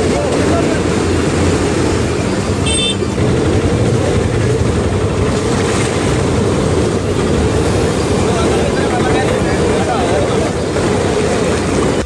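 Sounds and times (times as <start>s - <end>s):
floodwater rushing: 0.0s - 12.0s
high horn toot: 2.6s - 3.1s.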